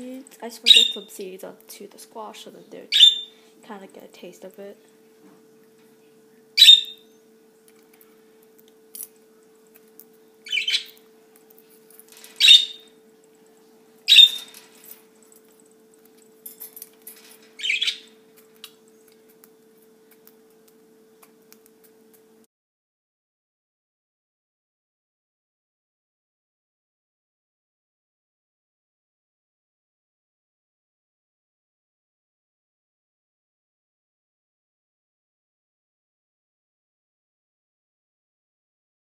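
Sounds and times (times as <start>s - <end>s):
faint steady hum: 0.0s - 22.5s
budgerigars chirping: 0.7s - 1.0s, 2.9s - 3.3s, 6.6s - 7.0s, 10.5s - 11.0s, 12.4s - 12.9s, 14.1s - 14.5s, 17.6s - 18.1s.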